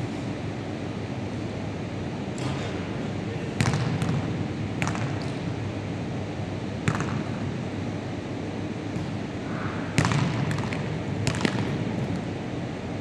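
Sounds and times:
steady background noise: 0.0 - 13.0
ball striking backboard and rim: 3.6 - 5.4, 6.8 - 7.4, 10.0 - 11.8
basketballs bouncing on wooden floor: 3.6 - 5.4, 6.8 - 7.2, 10.0 - 11.8.

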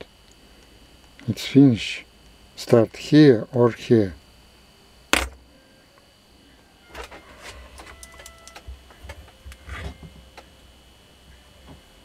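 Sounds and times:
small metal clicks and scrapes: 7.0 - 8.7.

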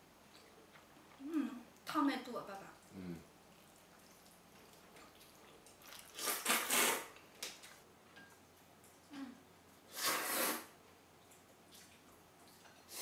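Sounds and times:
slurping noodles and soup: 6.0 - 7.1, 9.9 - 10.7.

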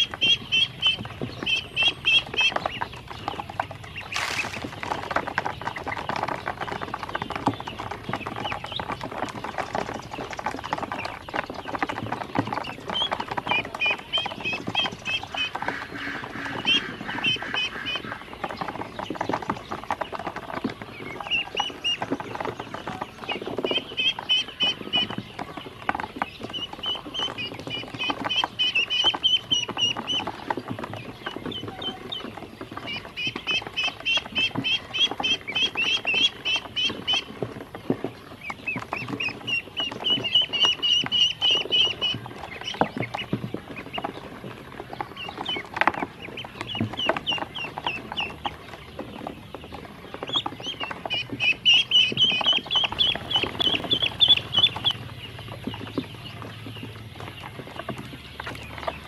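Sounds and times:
ducklings peeping: 0.0 - 59.0.

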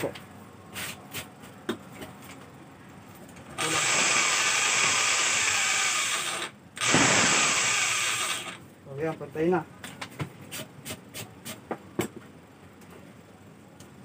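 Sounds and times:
electric drill boring wood: 3.6 - 8.6.

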